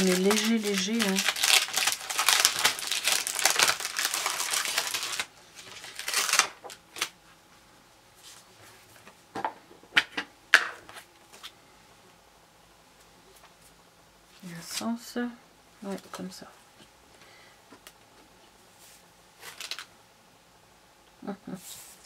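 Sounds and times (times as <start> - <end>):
plastic packaging crinkling: 0.0 - 7.2, 19.4 - 19.9.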